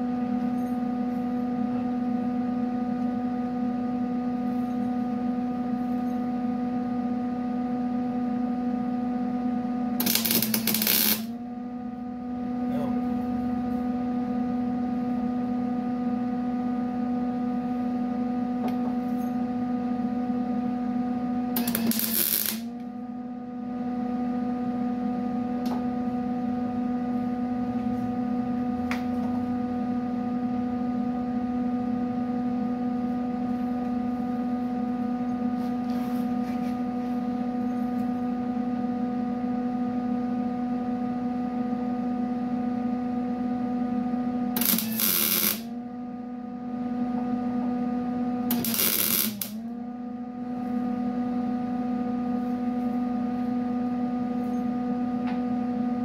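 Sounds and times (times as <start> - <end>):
electrical hum: 0.0 - 56.0
welding arc burst: 10.0 - 11.3, 21.6 - 22.7, 44.6 - 45.7, 48.5 - 49.6.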